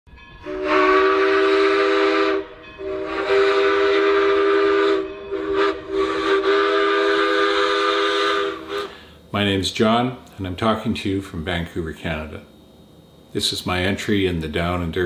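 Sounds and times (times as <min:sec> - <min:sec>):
steam locomotive whistle: 0:00.2 - 0:09.1
steam hissing: 0:00.4 - 0:09.9.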